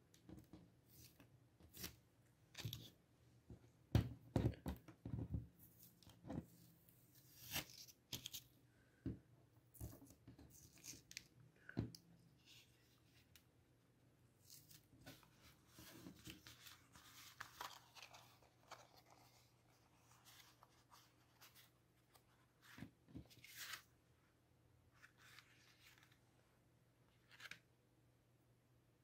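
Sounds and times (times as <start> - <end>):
paper rustling and crackling: 14.4 - 23.9.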